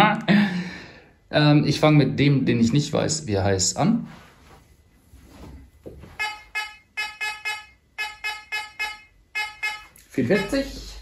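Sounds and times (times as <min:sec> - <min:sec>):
metal detector short beeps: 0:06.2 - 0:10.9.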